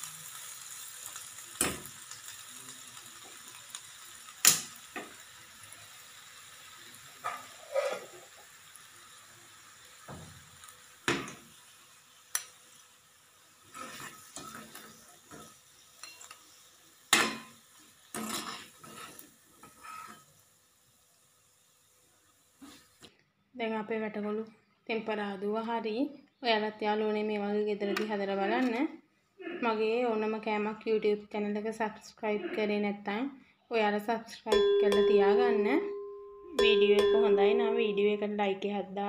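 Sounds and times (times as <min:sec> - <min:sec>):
faint sizzle: 0:00.0 - 0:39.0
metal spoon scraping a wok: 0:07.3 - 0:08.2, 0:13.7 - 0:14.8, 0:18.1 - 0:20.3.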